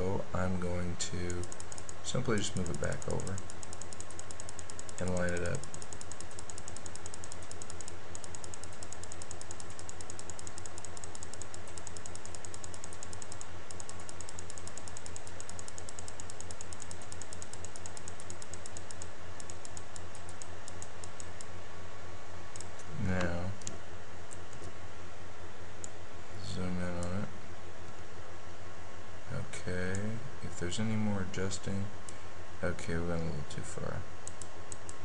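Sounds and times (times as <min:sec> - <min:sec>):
steady low hum: 0:00.0 - 0:35.0
rapid laptop clicking: 0:01.1 - 0:21.5.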